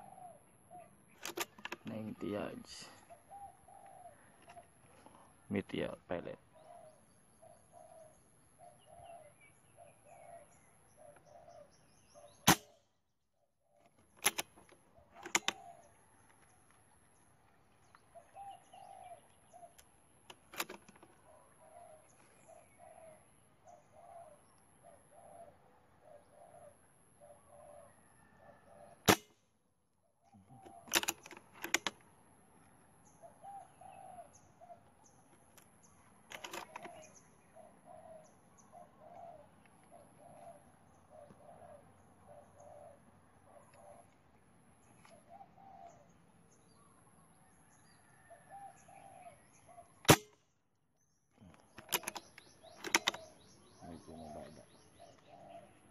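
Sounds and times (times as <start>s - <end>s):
bird calling: 0.0s - 12.9s, 13.6s - 16.4s, 17.0s - 29.2s, 30.2s - 32.0s, 32.7s - 50.3s, 51.3s - 55.9s
air rifle shots: 12.5s - 12.8s, 29.1s - 29.4s, 50.1s - 50.4s
rifle handling clicks: 30.9s - 32.0s, 36.3s - 37.1s, 51.8s - 53.2s.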